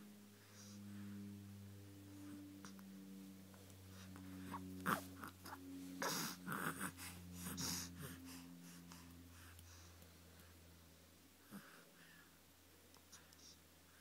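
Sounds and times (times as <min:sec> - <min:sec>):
baby cooing: 0:04.8 - 0:06.9.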